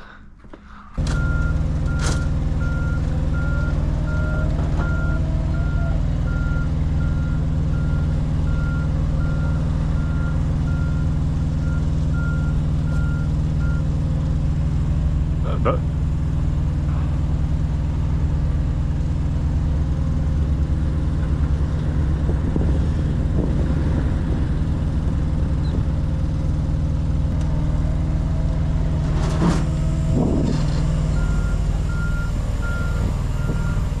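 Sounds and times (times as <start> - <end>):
diesel engine idling: 0.0 - 34.0
reversing alarm beeping: 1.1 - 13.8, 31.1 - 33.9.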